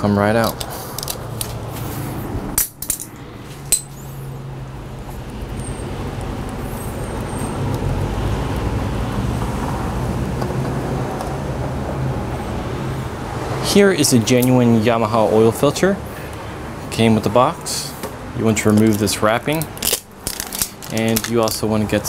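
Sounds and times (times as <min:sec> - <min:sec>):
steady low hum: 0:00.0 - 0:22.0
metallic clicks and clinks: 0:02.6 - 0:04.3, 0:18.7 - 0:21.7.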